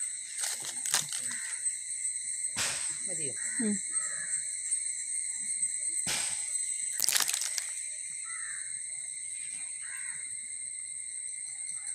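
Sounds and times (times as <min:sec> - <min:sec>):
high-pitched insect drone: 0:00.0 - 0:11.9
crow cawing: 0:01.2 - 0:01.7, 0:03.3 - 0:04.5, 0:08.2 - 0:08.8, 0:09.8 - 0:10.3.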